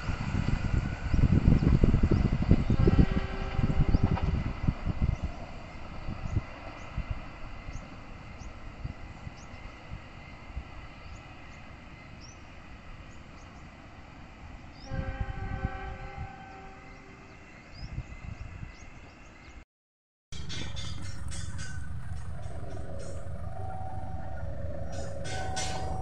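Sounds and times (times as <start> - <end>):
locomotive horn: 2.7 - 4.4, 14.8 - 17.4.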